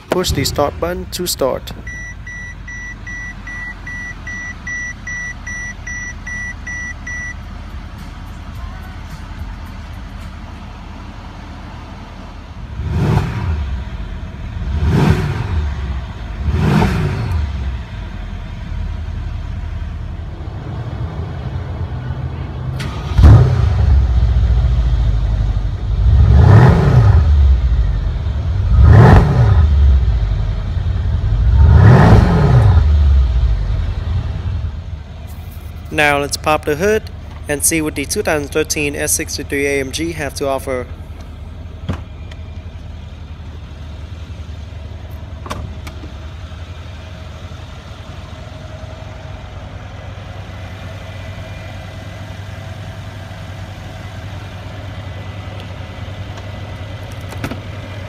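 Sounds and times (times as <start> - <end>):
car engine idling and revving: 0.0 - 58.0
dashboard warning chime beeping: 1.7 - 7.5.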